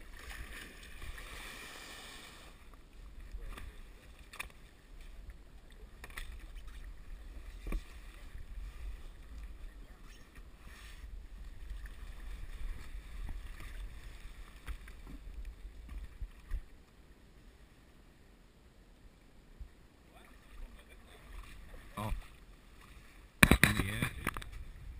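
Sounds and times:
wind rumble on microphone: 23.4 - 24.9.

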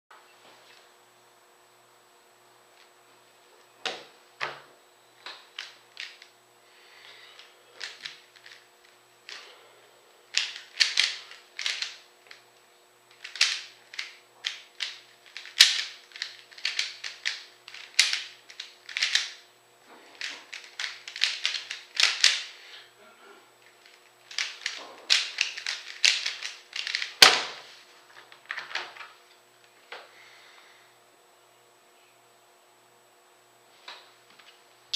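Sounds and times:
puzzle cube plastic clicking: 7.8 - 8.6, 10.3 - 12.4, 13.1 - 19.4, 20.2 - 22.5, 23.8 - 27.2.

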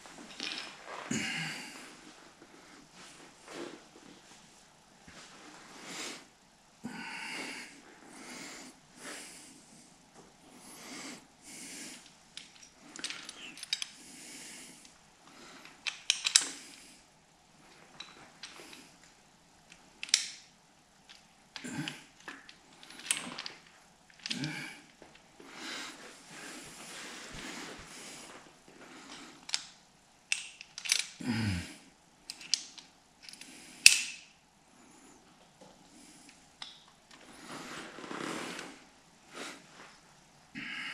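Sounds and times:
man breathing heavily: 1.0 - 3.7, 5.6 - 12.1, 12.8 - 15.8, 24.3 - 29.4, 31.2 - 31.9, 40.6 - 40.9
tools and steel parts clicking: 12.4 - 14.0, 15.7 - 16.5, 19.7 - 20.4, 29.4 - 31.2, 32.3 - 34.3.

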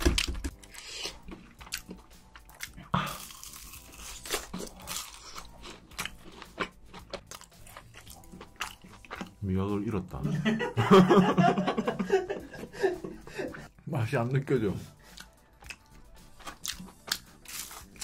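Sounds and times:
crunching and chewing snack: 0.2 - 9.4, 15.0 - 18.0.

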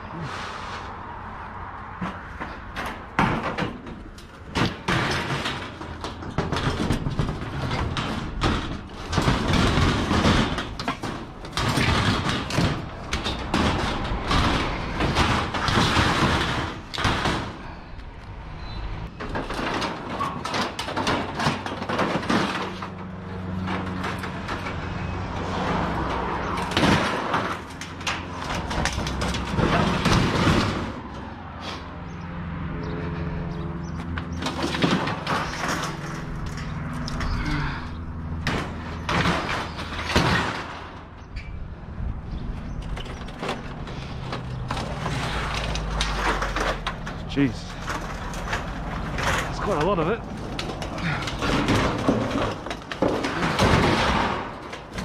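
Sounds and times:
scrap metal clanking: 34.1 - 41.6, 42.4 - 55.0.

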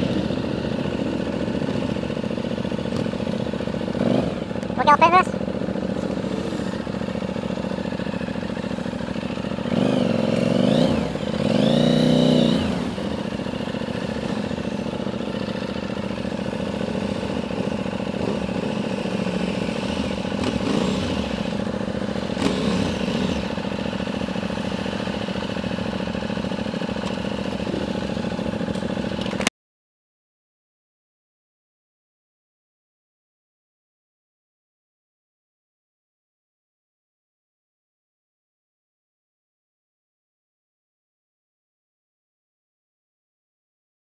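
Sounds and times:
motorcycle engine revving: 0.0 - 29.5.

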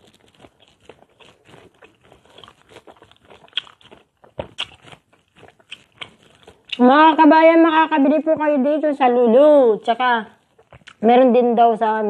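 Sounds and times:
person chewing crunchy fruit: 0.0 - 7.0, 9.8 - 11.0.

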